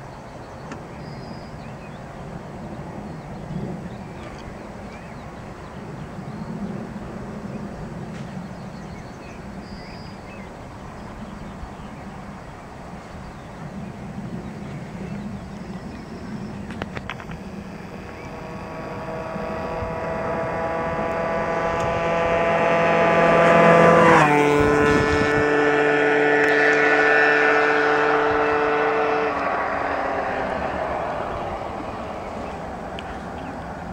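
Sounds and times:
scooter engine passing by: 0:11.2 - 0:33.9.

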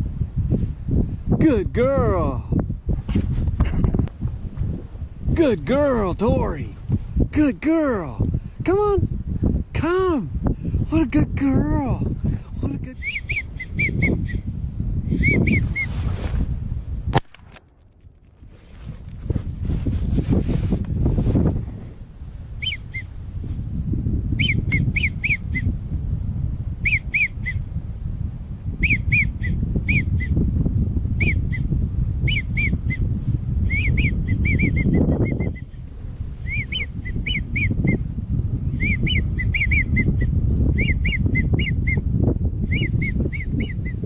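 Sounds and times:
wind on microphone: 0:00.0 - 0:44.0
duck whistling: 0:13.0 - 0:14.4, 0:26.8 - 0:27.6.

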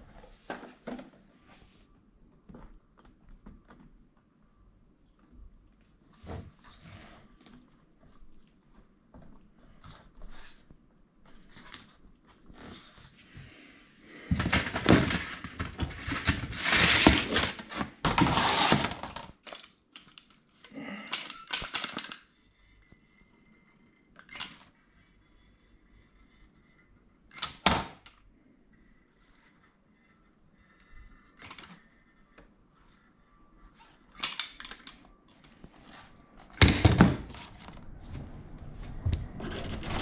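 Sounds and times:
rustling and scraping: 0:05.9 - 0:19.4, 0:28.8 - 0:40.0.

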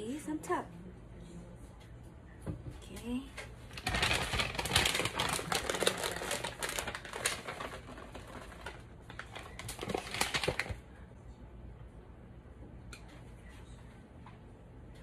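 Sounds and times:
plastic bag crinkling: 0:03.7 - 0:10.8.

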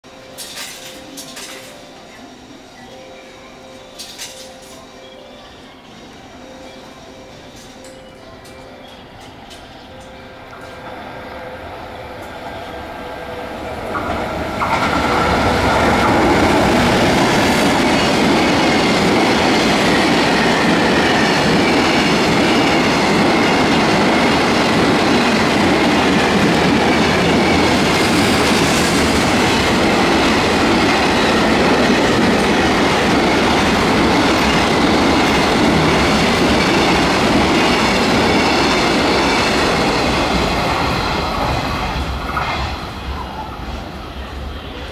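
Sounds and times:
train wheels clattering on rail: 0:00.3 - 0:01.9, 0:13.4 - 0:43.2.

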